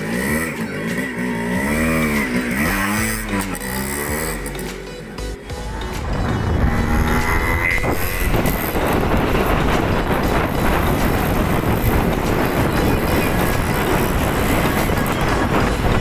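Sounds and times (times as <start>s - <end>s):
motorcycle engines and road noise: 0.0s - 16.0s
wind on microphone: 6.0s - 16.0s.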